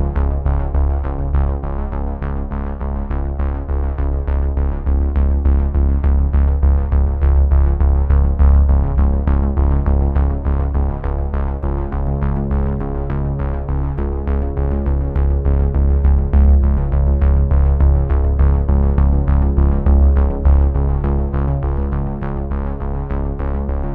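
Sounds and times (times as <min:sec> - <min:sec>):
steady low bass: 0:00.0 - 0:23.9.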